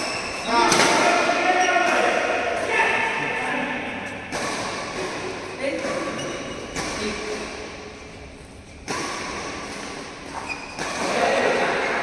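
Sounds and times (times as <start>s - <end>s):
voices in a hall: 0.0s - 8.5s, 10.9s - 12.0s
echoing hall background noise: 0.0s - 12.0s
badminton shuttlecock hit: 4.0s - 8.0s, 8.8s - 12.0s.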